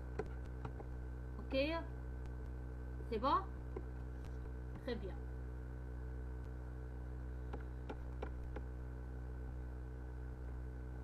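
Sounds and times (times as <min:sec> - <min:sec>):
steady low hum: 0:00.0 - 0:11.0
computer mouse clicks: 0:07.5 - 0:08.7.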